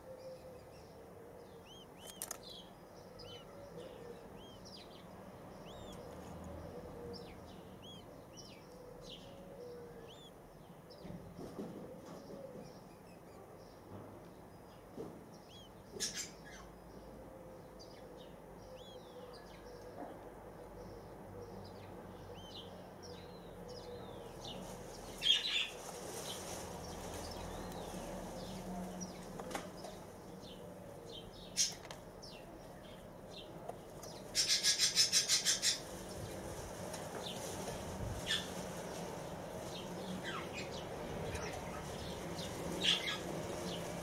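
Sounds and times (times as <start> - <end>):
small birds chirping: 0.0 - 44.0
sharp clicks: 2.0 - 2.6.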